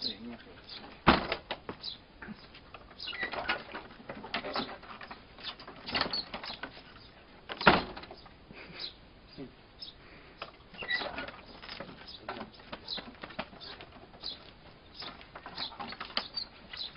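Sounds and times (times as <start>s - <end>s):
door banging shut: 1.0s - 1.6s, 5.8s - 6.5s, 7.5s - 8.2s
wooden door knocking and scraping: 1.0s - 1.8s.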